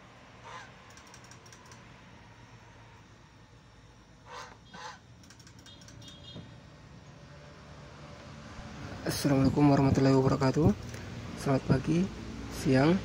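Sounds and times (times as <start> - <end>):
faint clicks: 0.9 - 1.8.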